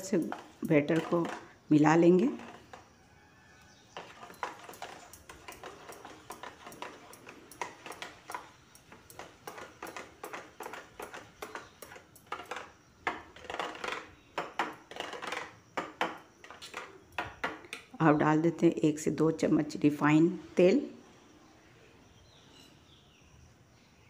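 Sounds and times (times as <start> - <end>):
spoon stirring batter in metal bowl: 0.0 - 17.7.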